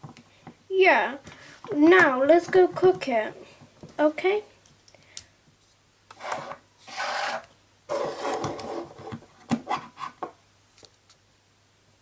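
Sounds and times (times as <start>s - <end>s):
plastic pieces scraping on table: 6.2s - 10.2s.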